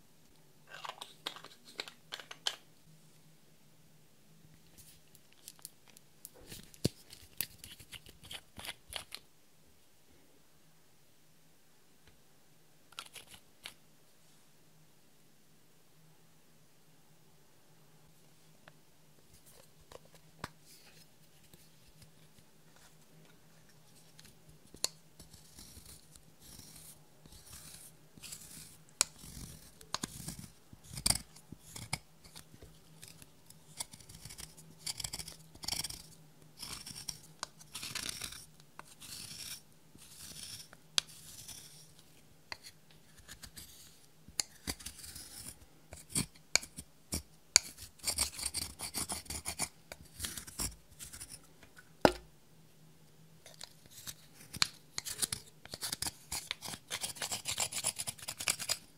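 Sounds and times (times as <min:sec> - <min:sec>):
metal tool scraping powder: 0:25.2 - 0:41.9, 0:42.5 - 0:51.4, 0:53.5 - 0:58.8.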